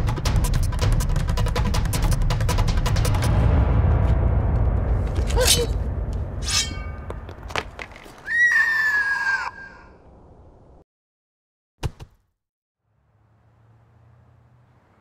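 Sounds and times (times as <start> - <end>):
dramatic film score: 0.0 - 9.6
low drum rumble: 3.1 - 6.4
high drawn-out scream: 8.2 - 10.0.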